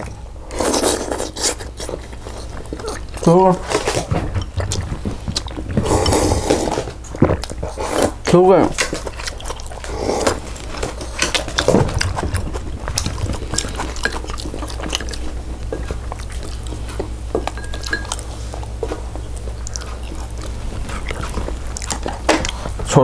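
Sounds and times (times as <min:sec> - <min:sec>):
steady low hum: 0:00.0 - 0:23.0
utensils clinking against dishes: 0:13.5 - 0:14.7, 0:17.4 - 0:18.3.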